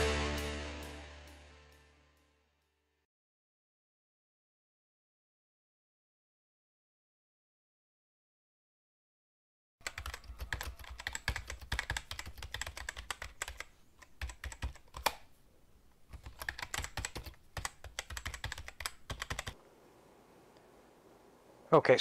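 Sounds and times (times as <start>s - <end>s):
computer keyboard typing: 9.8s - 15.3s, 16.1s - 19.6s.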